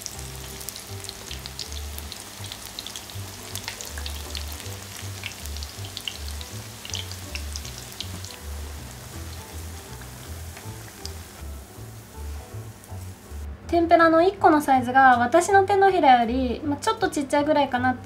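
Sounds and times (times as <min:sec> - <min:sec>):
tempura frying in hot oil: 0:00.0 - 0:13.4
background music: 0:00.0 - 0:18.0.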